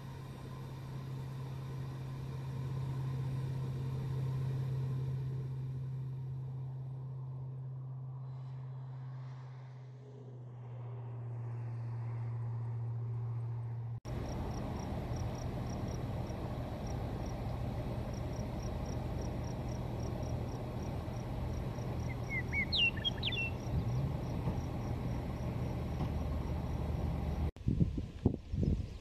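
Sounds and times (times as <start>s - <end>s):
low hum: 0.0s - 27.5s
insect chirping: 14.1s - 27.5s
bird call: 22.0s - 24.0s
wind buffeting microphone: 27.6s - 29.0s
wind rushing over grass: 27.6s - 29.0s.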